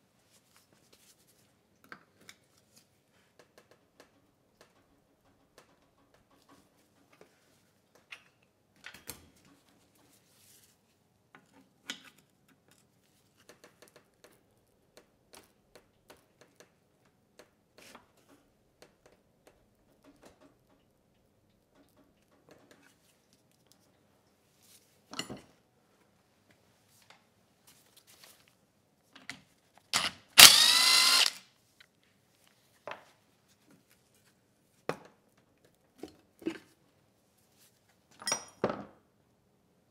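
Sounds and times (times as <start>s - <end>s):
cordless drill whining: 30.0s - 31.4s.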